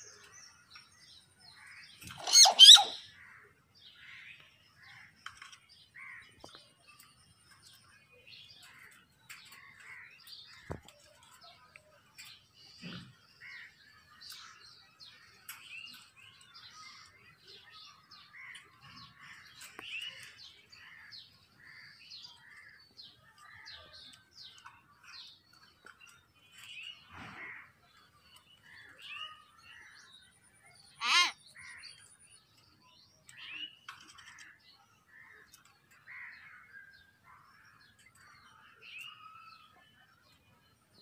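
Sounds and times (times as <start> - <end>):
birds chirping and whistling: 0.0 - 3.2, 37.9 - 40.4.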